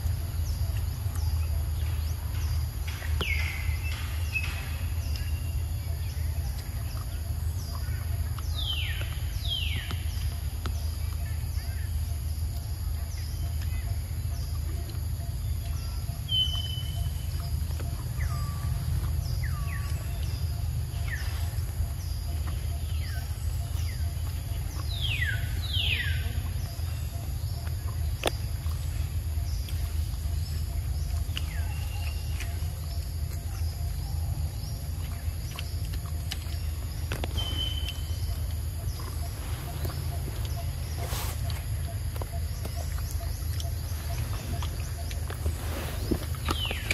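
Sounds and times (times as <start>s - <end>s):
falling whistled bird calls: 37.1s - 38.4s.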